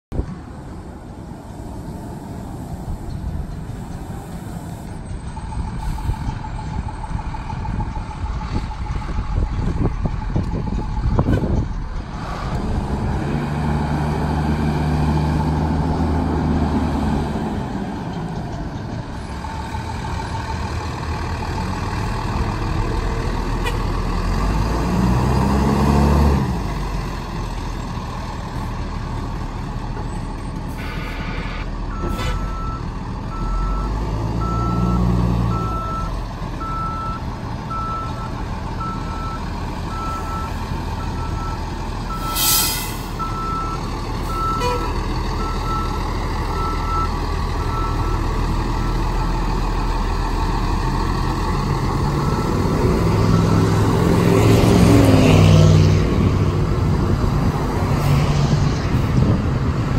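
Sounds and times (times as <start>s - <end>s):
fire engine diesel engine: 0.1s - 59.9s
reversing alarm beeping: 30.8s - 42.5s, 43.2s - 49.0s, 52.2s - 53.8s
air brake hissing: 42.2s - 43.2s.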